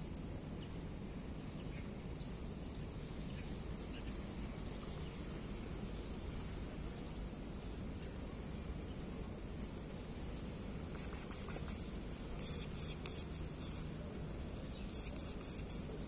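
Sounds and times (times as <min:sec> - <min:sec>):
steady background hiss: 0:00.0 - 0:16.0
cricket chirping: 0:10.9 - 0:14.0, 0:14.6 - 0:16.0.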